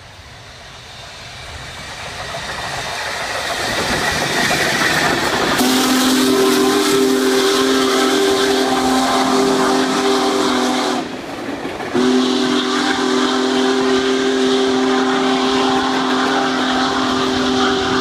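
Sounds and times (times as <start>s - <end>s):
passing train rolling: 0.0s - 18.0s
steam locomotive whistle: 5.4s - 11.2s, 11.9s - 18.0s.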